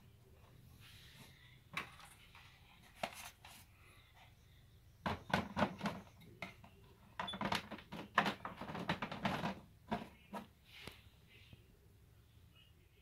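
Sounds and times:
plastic panel knocks and clicks: 7.2 - 10.2.

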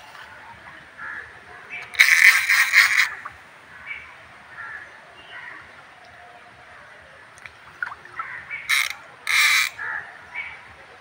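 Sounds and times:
crows cawing: 1.0 - 1.3, 1.9 - 5.6, 8.0 - 10.6
fish splashing: 7.4 - 9.8.

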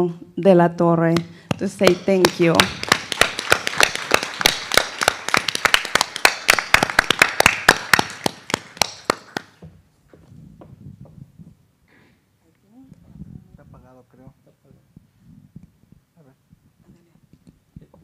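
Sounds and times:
audience applauding: 1.8 - 9.6.

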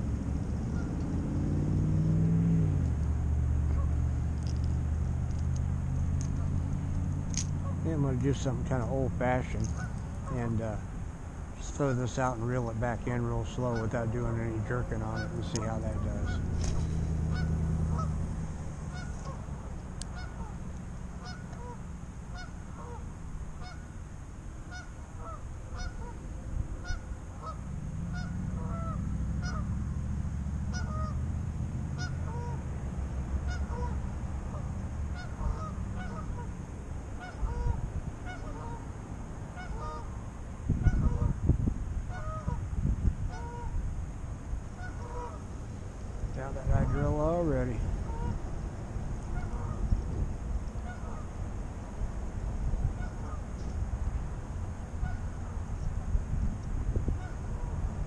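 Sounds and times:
wind rumble on microphone: 0.0 - 58.0
geese honking: 0.6 - 1.0, 3.6 - 4.1, 7.6 - 8.1, 9.5 - 10.6, 13.1 - 24.0, 24.6 - 26.2, 26.8 - 29.8, 30.6 - 31.3, 31.9 - 32.7, 33.4 - 38.9, 39.5 - 40.2, 40.8 - 41.4, 42.1 - 42.7, 43.3 - 43.8, 44.7 - 45.6, 46.4 - 48.4, 49.2 - 50.0, 50.7 - 51.4, 52.9 - 53.6, 55.0 - 55.6, 57.1 - 57.8.

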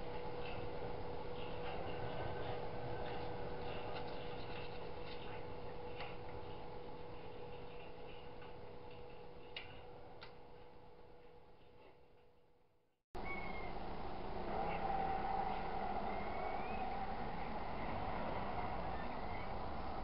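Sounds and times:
machine hum with ticking: 0.0 - 12.6, 13.2 - 20.0.

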